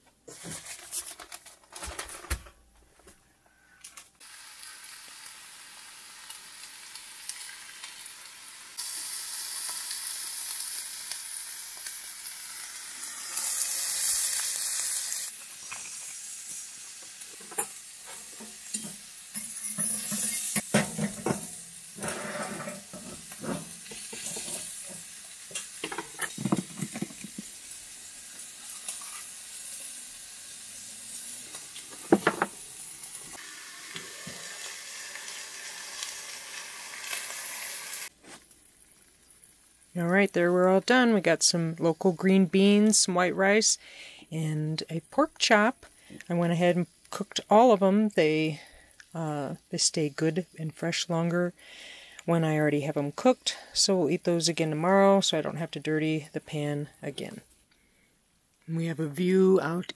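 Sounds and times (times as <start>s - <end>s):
meat sizzling in skillet: 4.2s - 40.0s
metal pot lid and utensils clinking: 17.4s - 27.5s.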